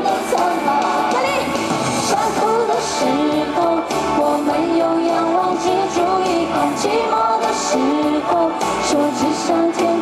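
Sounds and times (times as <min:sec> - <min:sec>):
live pop song with full band: 0:00.0 - 0:10.0.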